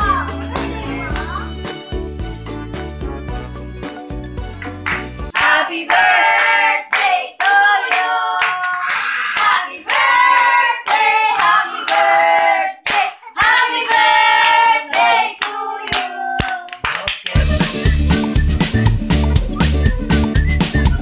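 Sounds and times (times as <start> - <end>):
hands clapping: 0.5 - 1.4, 4.5 - 21.0
people singing together: 5.4 - 8.7, 9.4 - 16.7.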